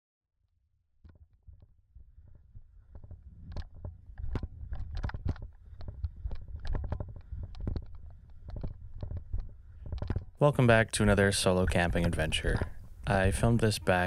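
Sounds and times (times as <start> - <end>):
toboggan knocks and clunks: 2.9 - 10.4.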